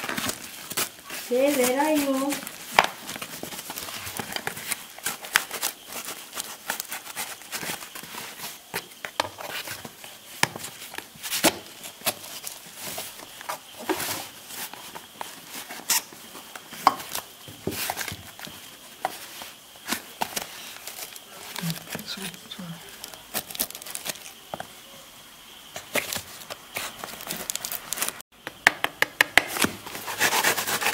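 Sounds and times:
knife slitting packing tape: 0:29.6 - 0:30.9.

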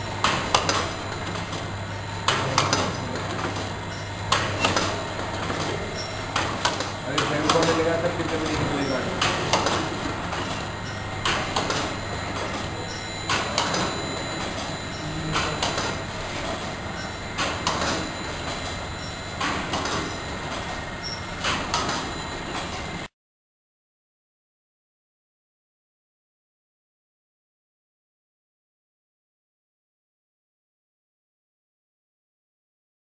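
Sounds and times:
packing machine running: 0:00.0 - 0:23.1
machine clacking: 0:00.1 - 0:23.0.

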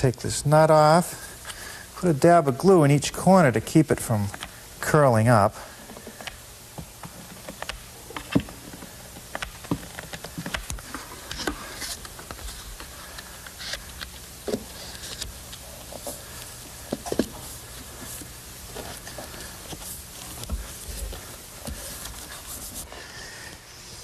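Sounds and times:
paper rustling: 0:09.2 - 0:23.4.

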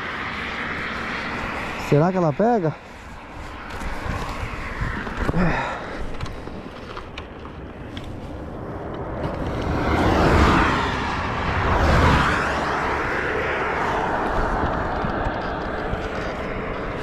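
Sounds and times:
highway traffic passing: 0:00.0 - 0:17.0
wind on microphone: 0:03.1 - 0:06.6, 0:07.6 - 0:17.0.

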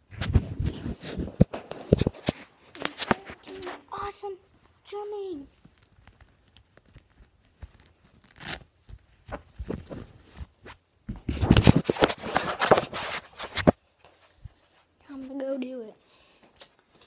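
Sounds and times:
hands rubbing on microphone: 0:00.0 - 0:04.0.

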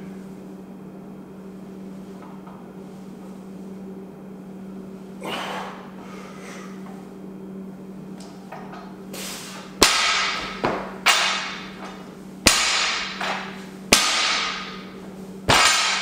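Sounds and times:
barbell clanking on platform: 0:09.9 - 0:14.8, 0:15.5 - 0:16.0.

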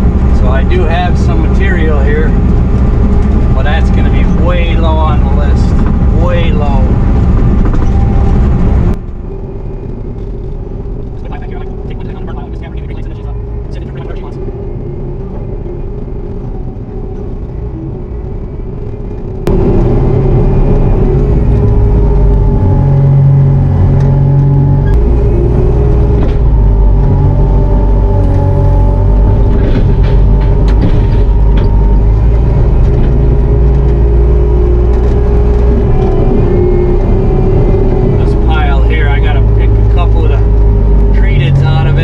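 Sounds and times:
diesel engine running under load: 0:00.0 - 0:42.0.

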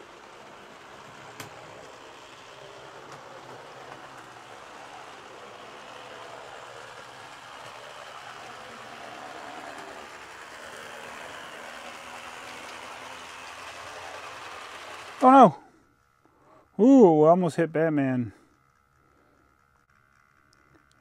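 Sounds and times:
model train motor whirring rattle: 0:00.0 - 0:16.2.

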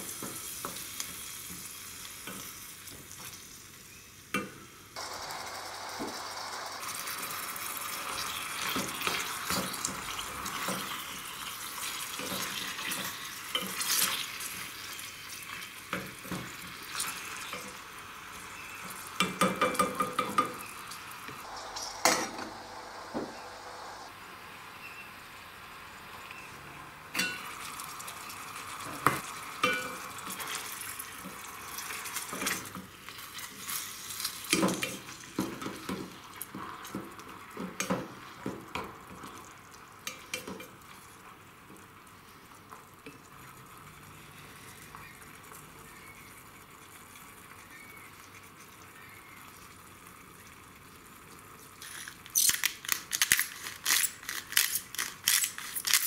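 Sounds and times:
meat sizzling in a pot: 0:00.0 - 0:56.0
pepper mill grinding: 0:51.8 - 0:56.0.

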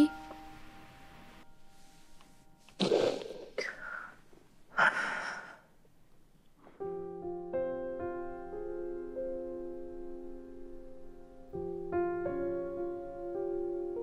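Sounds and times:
soft piano music: 0:00.0 - 0:02.8, 0:06.7 - 0:14.0
person breathing heavily: 0:02.9 - 0:05.7.

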